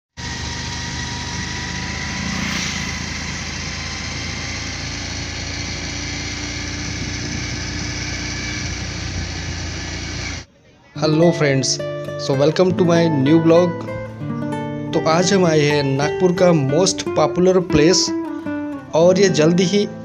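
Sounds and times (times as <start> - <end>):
motor scooter engine running: 0.2 - 10.5.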